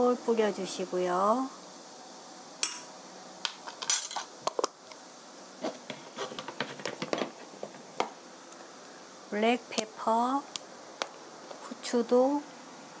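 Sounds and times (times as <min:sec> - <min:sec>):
small taps scrapes and rustles: 0:05.6 - 0:08.7.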